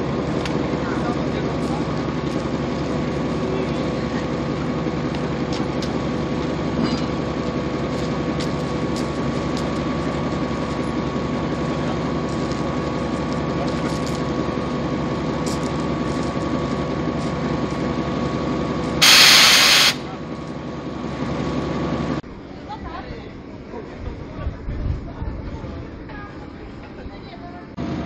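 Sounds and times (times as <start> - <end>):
diesel locomotive idling: 0.0 - 28.0
loud hiss: 19.0 - 20.0.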